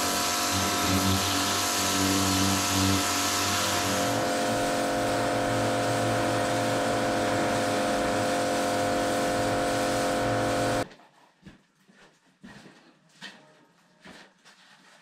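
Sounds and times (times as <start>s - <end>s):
pressure washer pump hum: 0.0s - 10.8s
water jet hissing: 0.0s - 10.8s.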